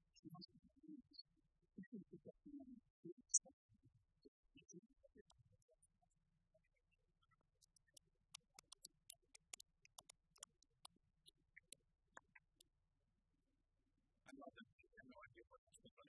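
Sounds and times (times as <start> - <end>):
faint short clicks and ticks: 7.6 - 12.7.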